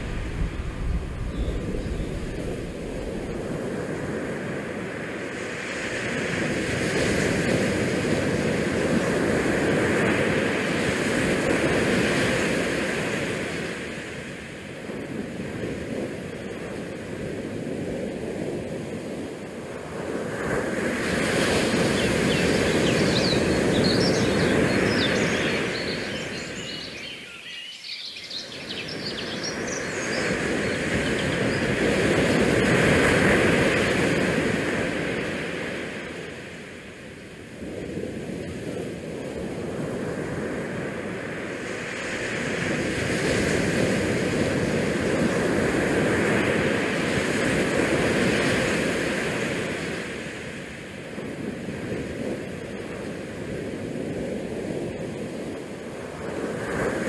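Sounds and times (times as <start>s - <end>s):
wind: 0.0s - 57.0s
small waves: 28.4s - 57.0s.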